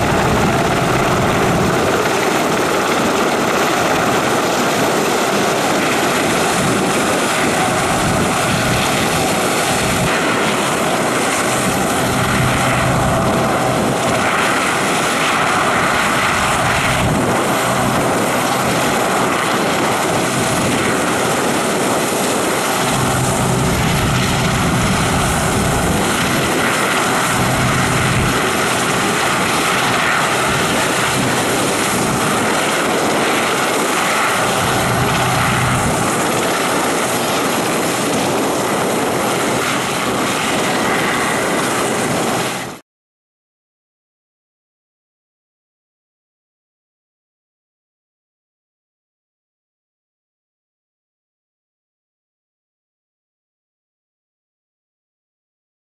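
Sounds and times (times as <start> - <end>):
helicopter rotor throb: 0.0 - 42.8
helicopter turbine whine: 0.0 - 42.8.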